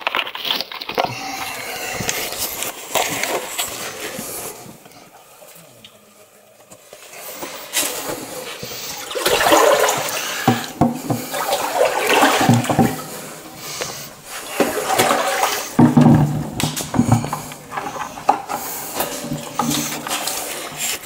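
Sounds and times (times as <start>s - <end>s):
dull footsteps in water: 7.8s - 21.0s
shallow water splashing: 8.7s - 21.0s.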